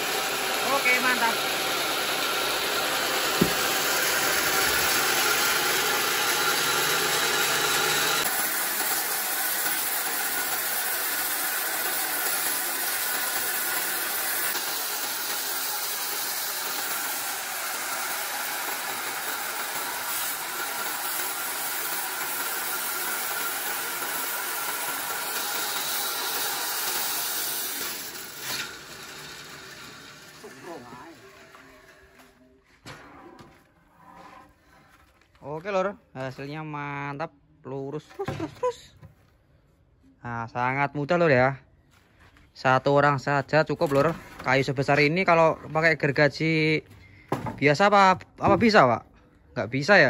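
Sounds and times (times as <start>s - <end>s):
band saw cutting wood hiss: 0.0s - 31.2s.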